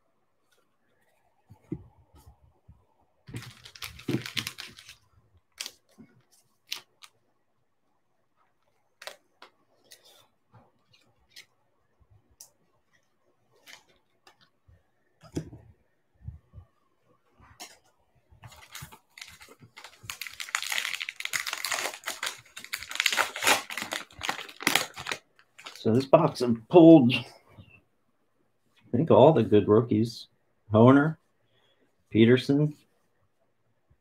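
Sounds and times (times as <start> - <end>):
wrapper tearing and crinkling: 3.4 - 5.8, 18.6 - 25.8.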